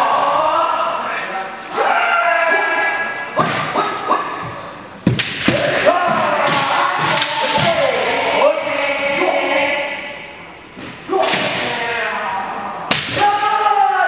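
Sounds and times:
fighters' shouts: 1.7 - 4.4, 5.4 - 10.0, 11.0 - 14.0.

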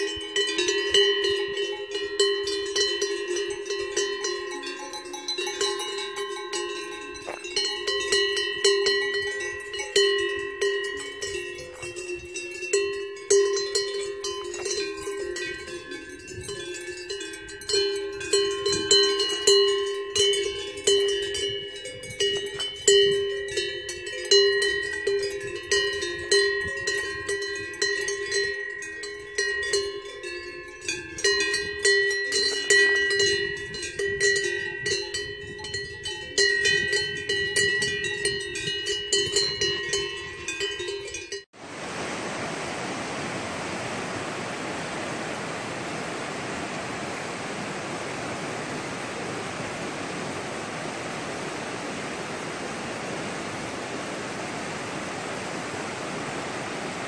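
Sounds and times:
cow bells clanking: 0.0 - 41.5.

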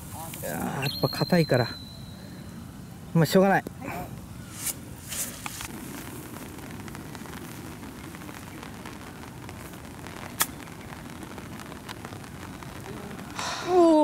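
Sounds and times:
steady background noise: 0.0 - 14.0
golf ball struck with club: 13.4 - 14.0.

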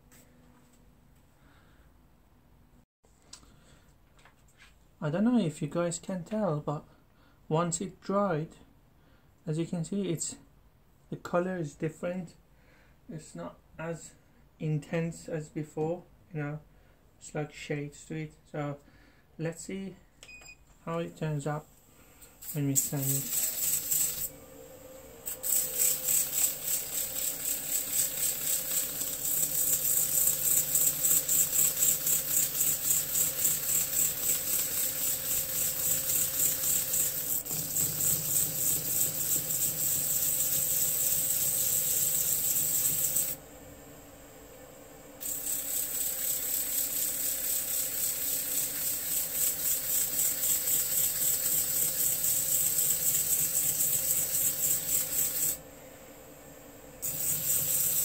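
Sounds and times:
lathe humming: 22.8 - 43.4, 45.2 - 55.6
sanding pad rasping on wood: 45.2 - 55.6.

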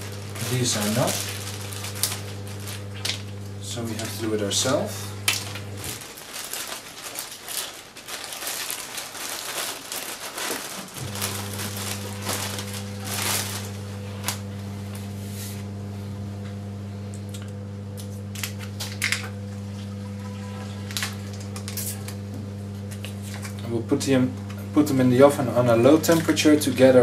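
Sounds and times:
plastic bags crinkling: 0.0 - 15.0, 18.2 - 19.4, 20.8 - 22.2, 24.9 - 27.0
low electrical hum: 0.0 - 27.0.

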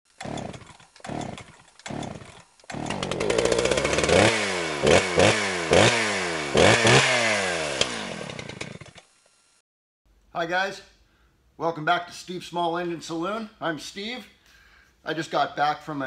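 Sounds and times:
chainsaw engine revving: 0.1 - 9.6.

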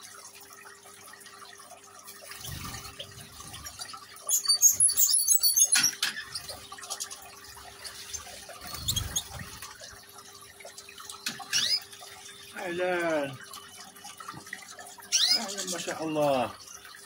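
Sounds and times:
water trickling over rocks: 0.0 - 17.0
small birds twittering: 8.6 - 9.5, 11.2 - 17.0.

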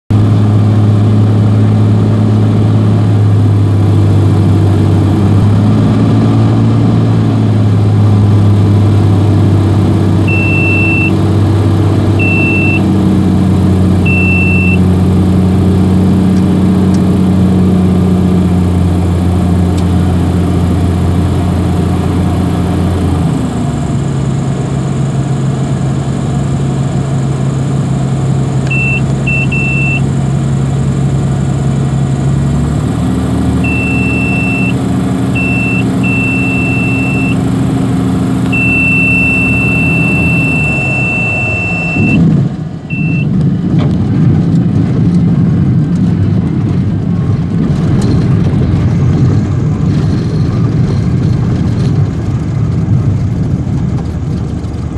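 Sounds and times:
light aircraft engine drone: 0.1 - 54.9
short high beeps: 10.3 - 11.2, 12.2 - 12.9, 14.1 - 14.8, 28.7 - 30.1, 33.6 - 34.8, 35.4 - 37.4, 38.5 - 42.2, 42.9 - 43.3.

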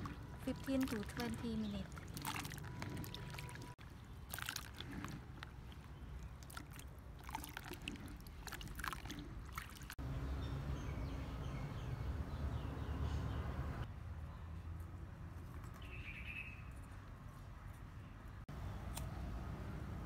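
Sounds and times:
water sloshing in basin: 0.0 - 10.0.

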